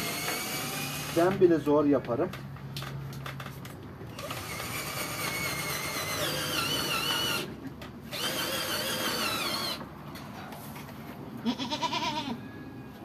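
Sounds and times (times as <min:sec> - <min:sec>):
cordless drill driving screws: 0:00.0 - 0:01.4, 0:04.1 - 0:07.5, 0:08.1 - 0:09.8.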